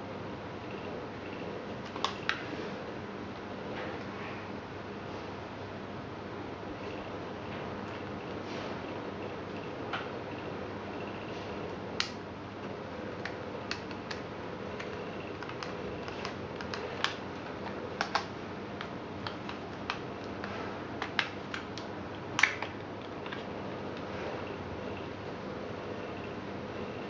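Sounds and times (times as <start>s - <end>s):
plastic headphones clicking: 14.8s - 23.4s.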